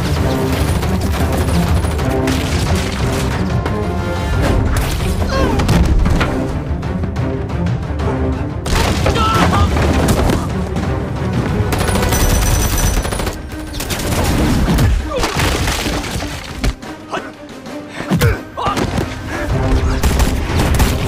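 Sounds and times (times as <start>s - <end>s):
dramatic music score: 0.0s - 21.0s.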